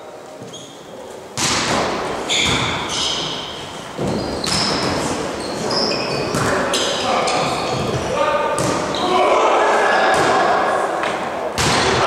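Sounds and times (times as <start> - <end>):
sneakers squeaking on court: 0.4 - 9.1
volleyball hits echoing: 1.4 - 3.4, 4.0 - 5.1, 6.2 - 12.0.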